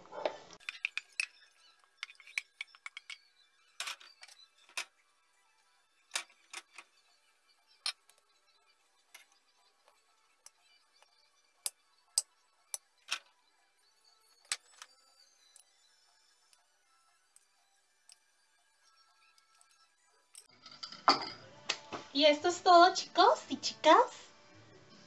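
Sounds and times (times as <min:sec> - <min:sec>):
cutlery clinking on glass plate: 0:20.4 - 0:21.4.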